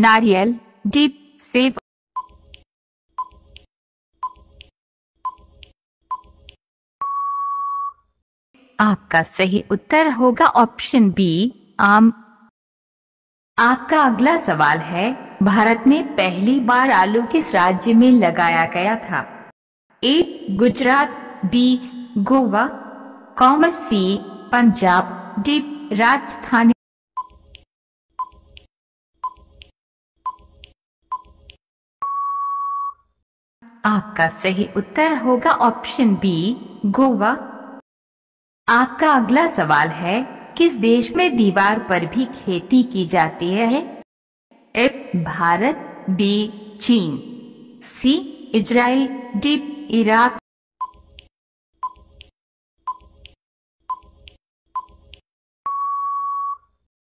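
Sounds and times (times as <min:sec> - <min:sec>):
countdown timer beeps: 0:07.0 - 0:08.0, 0:32.0 - 0:33.0, 0:55.7 - 0:56.6
long steady beep: 0:07.0 - 0:08.0, 0:32.0 - 0:33.0, 0:55.7 - 0:56.7.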